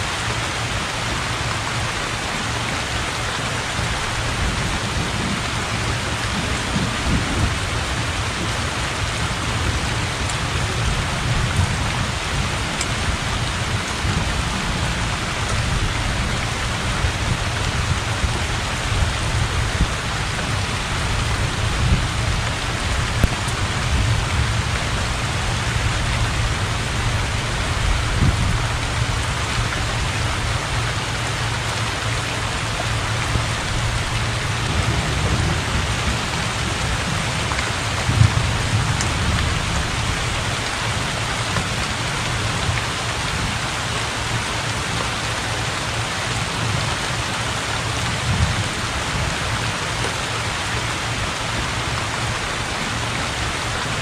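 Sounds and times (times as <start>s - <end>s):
heavy rain on pond and roof: 0.0s - 54.0s
distant thunder rumble: 3.8s - 29.3s, 32.4s - 41.0s.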